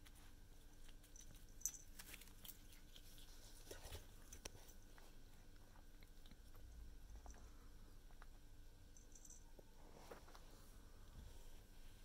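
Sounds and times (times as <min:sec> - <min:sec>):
kitten chewing crunchy food: 0:00.0 - 0:08.6.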